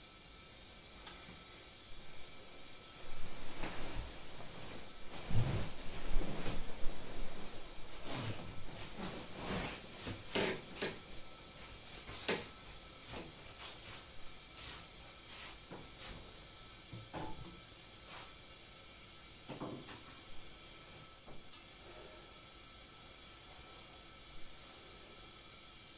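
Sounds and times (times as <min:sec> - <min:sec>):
kettle simmering hiss: 0:00.0 - 0:25.9
clothing rustling: 0:02.4 - 0:11.0
soft footsteps on mats: 0:03.1 - 0:11.0, 0:11.6 - 0:16.4.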